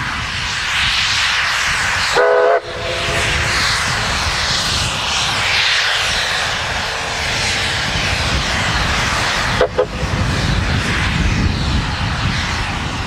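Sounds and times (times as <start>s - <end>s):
steam and exhaust roaring: 0.0s - 13.0s
low rumble: 1.9s - 5.5s
steam locomotive whistle: 2.2s - 3.6s, 9.6s - 9.9s.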